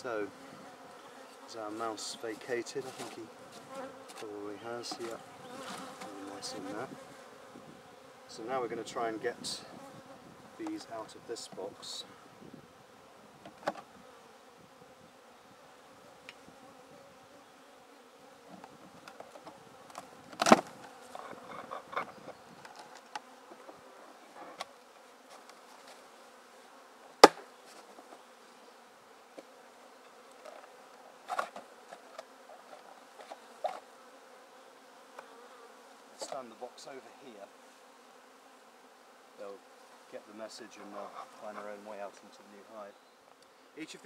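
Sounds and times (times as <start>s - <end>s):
honeybees buzzing: 0.0s - 44.0s
wooden hive boxes knocking: 27.2s - 27.5s.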